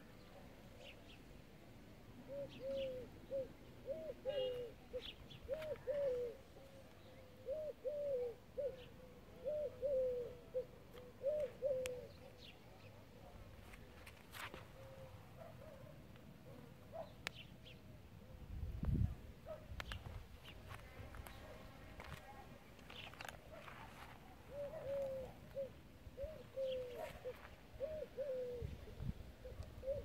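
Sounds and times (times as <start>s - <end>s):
dove cooing: 2.2s - 12.5s, 14.7s - 15.9s, 20.7s - 30.0s.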